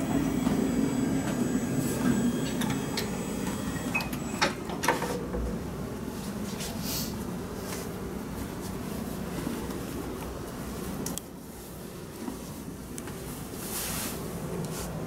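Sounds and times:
hospital bed motor humming: 0.0 - 5.7.

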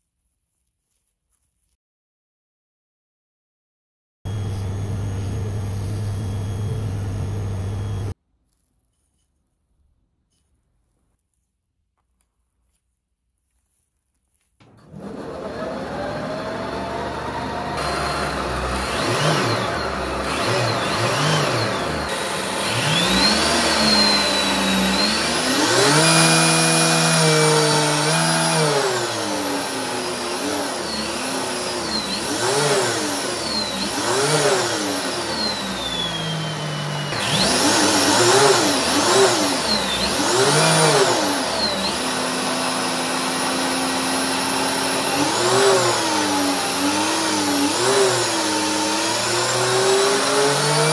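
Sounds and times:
electric motor whining: 4.3 - 8.1, 14.6 - 50.9.

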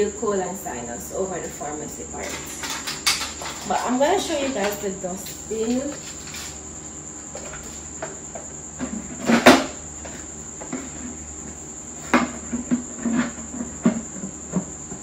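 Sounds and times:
crickets trilling: 0.0 - 15.0
dustbin knocking and clattering: 2.2 - 6.6, 8.8 - 11.0.

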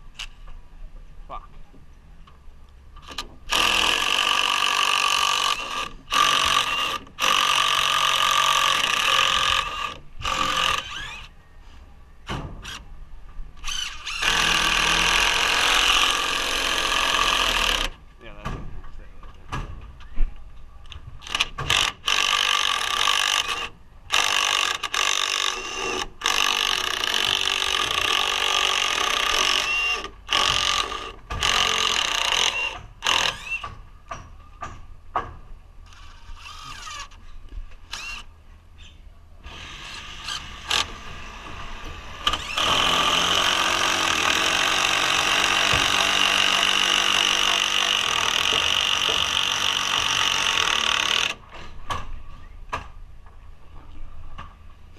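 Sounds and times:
cordless driver driving screws: 13.6 - 18.0, 21.2 - 33.8, 42.2 - 51.4.

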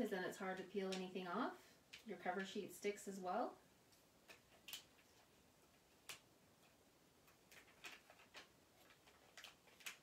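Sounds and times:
plastic sheet crinkling: 7.2 - 10.0.

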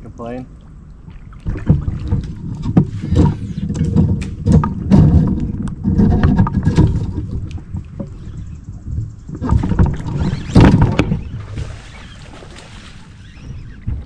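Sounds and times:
fish splashing at surface: 10.6 - 13.2.

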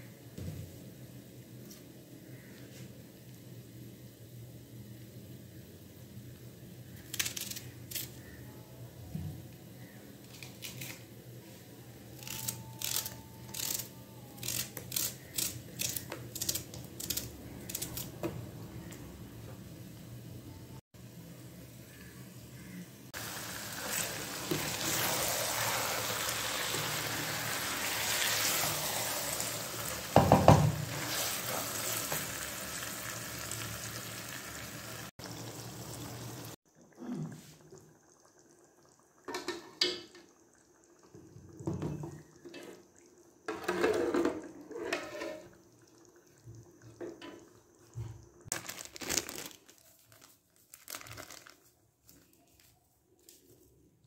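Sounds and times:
onions sizzling in oil: 22.0 - 36.6.

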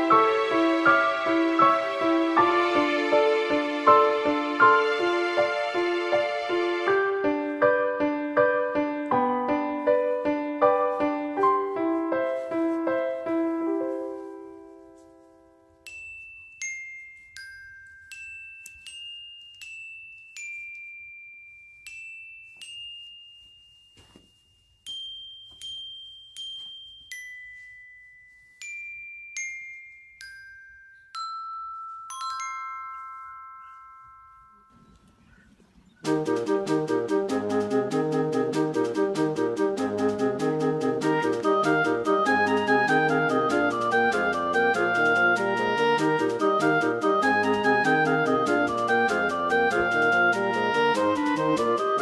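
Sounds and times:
gentle background music: 0.0 - 16.0, 36.0 - 52.0.

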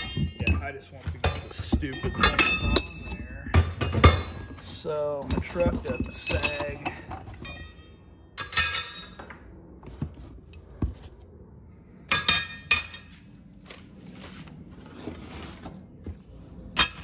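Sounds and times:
steel hardware clinking: 0.0 - 9.3.

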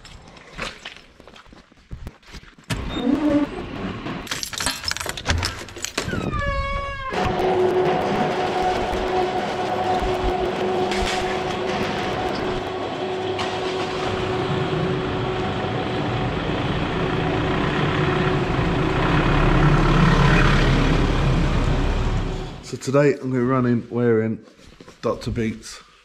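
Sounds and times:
roller shutter motor whining: 6.0 - 22.6
pickup truck engine: 7.2 - 22.6.

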